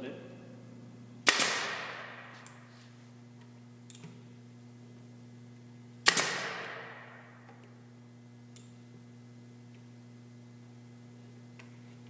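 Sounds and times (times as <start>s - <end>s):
pneumatic nailer firing: 1.2s - 2.6s, 6.0s - 7.5s.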